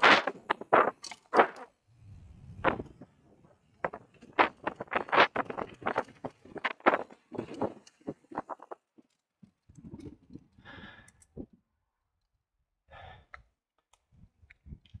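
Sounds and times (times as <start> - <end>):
bike tyre rumble and rattle: 0.0 - 11.5.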